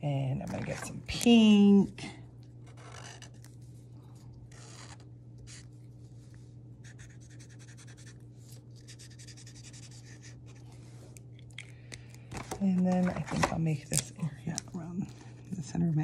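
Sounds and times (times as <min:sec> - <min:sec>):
steady low hum: 0:00.0 - 0:16.0
felt marker scratching on paper: 0:06.8 - 0:08.2, 0:08.8 - 0:10.6.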